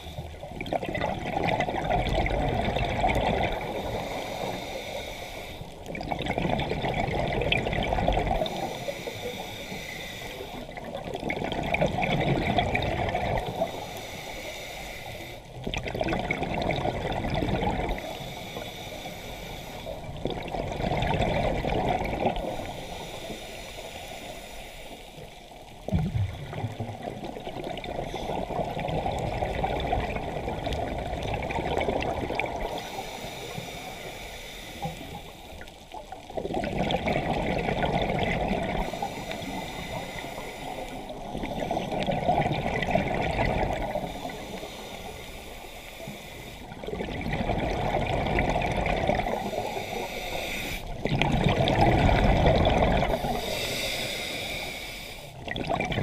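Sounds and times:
bubbles gurgling: 0:00.0 - 0:04.2, 0:05.7 - 0:08.7, 0:10.5 - 0:13.8, 0:15.6 - 0:18.1, 0:19.9 - 0:22.7, 0:25.8 - 0:32.9, 0:35.8 - 0:40.1, 0:40.8 - 0:45.0, 0:46.6 - 0:50.1, 0:50.8 - 0:53.6, 0:55.3 - 0:56.0
underwater regulator breathing: 0:03.5 - 0:05.9, 0:08.3 - 0:10.9, 0:13.2 - 0:15.5, 0:17.6 - 0:20.2, 0:21.6 - 0:25.4, 0:32.4 - 0:35.8, 0:37.2 - 0:56.0.

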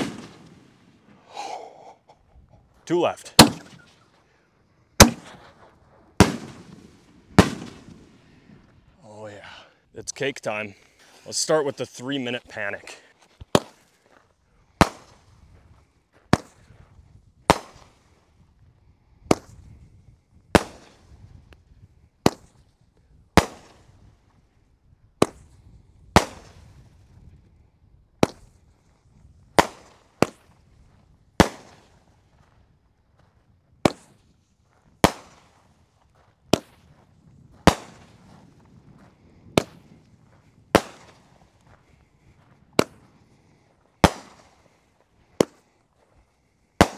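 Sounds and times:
fireworks bangs: 0:00.0 - 0:01.2, 0:02.9 - 0:04.0, 0:05.0 - 0:08.2, 0:37.6 - 0:38.6.

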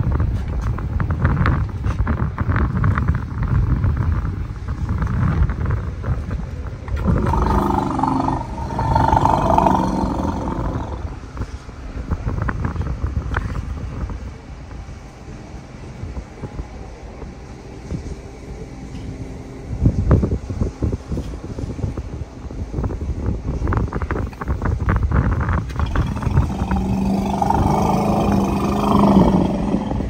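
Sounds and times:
wind rumble on microphone: 0:00.0 - 0:30.0
elephant call: 0:07.0 - 0:11.2, 0:25.8 - 0:30.0.

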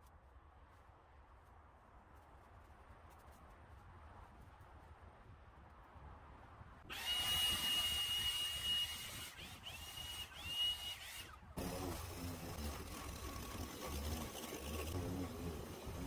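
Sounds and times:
power tool motor whining: 0:06.9 - 0:16.0
low engine drone: 0:11.6 - 0:16.0.

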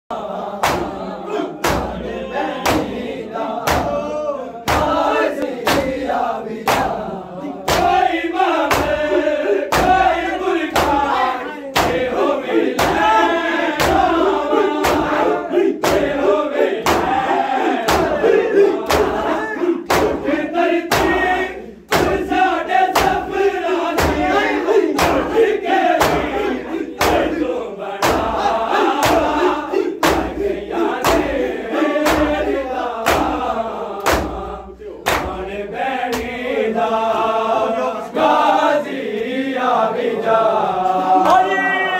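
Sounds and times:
men chanting together: 0:00.1 - 0:41.9
hands slapping chests: 0:00.6 - 0:01.0, 0:01.6 - 0:02.0, 0:02.6 - 0:03.0, 0:03.6 - 0:04.0, 0:04.7 - 0:07.0, 0:07.7 - 0:11.2, 0:11.8 - 0:16.2, 0:16.8 - 0:17.2, 0:17.8 - 0:26.4, 0:27.0 - 0:27.3, 0:28.0 - 0:31.4, 0:32.0 - 0:35.5, 0:36.1 - 0:36.4.

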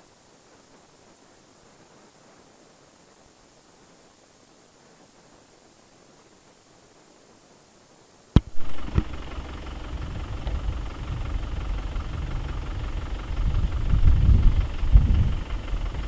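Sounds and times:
faint hiss: 0:00.0 - 0:16.0
sharp click: 0:08.4 - 0:09.5
car engine idling: 0:08.4 - 0:16.0.

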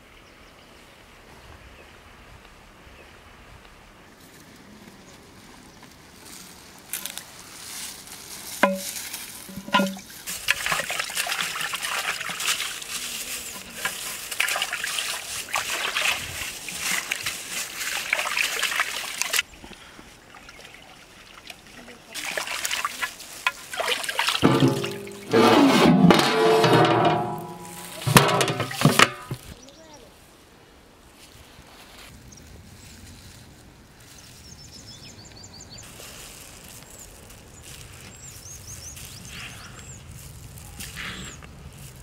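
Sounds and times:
ringing knocks: 0:08.6 - 0:10.0, 0:24.4 - 0:25.4, 0:26.1 - 0:29.2
water splashing in a steel pot: 0:09.5 - 0:19.4, 0:21.3 - 0:25.5.

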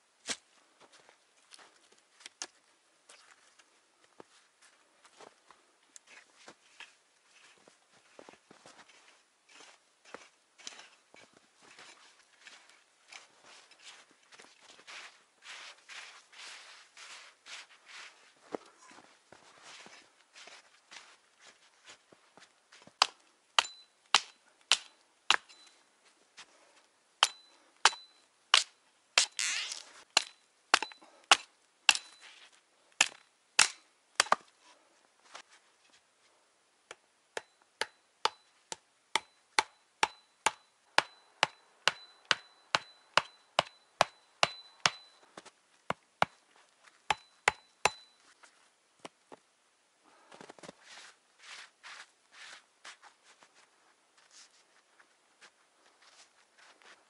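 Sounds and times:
hammer blows on wooden stakes: 0:22.9 - 0:25.8, 0:36.9 - 0:48.3.

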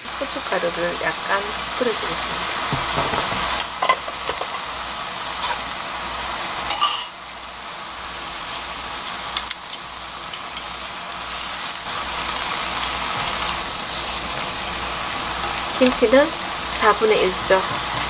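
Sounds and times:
meat sizzling in a frying pan: 0:00.0 - 0:18.0
wooden utensils clacking on pan: 0:02.8 - 0:04.6.

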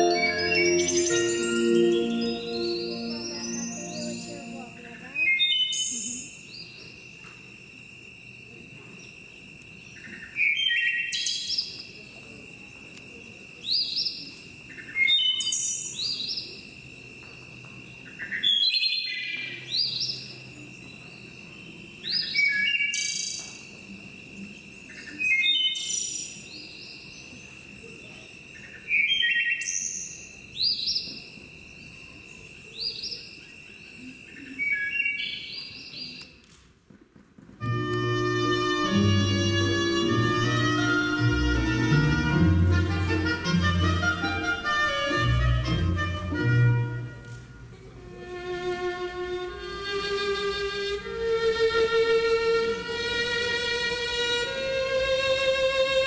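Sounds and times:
steady high tone: 0:00.0 - 0:05.2
songbird chirping: 0:00.0 - 0:07.3, 0:12.9 - 0:36.4.

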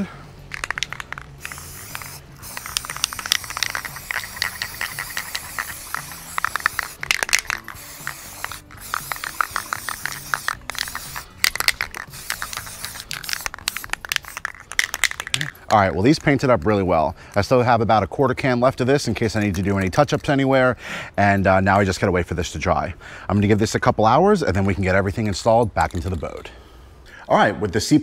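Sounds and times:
background music: 0:00.0 - 0:28.0
aerosol spray can hissing: 0:00.4 - 0:15.6.

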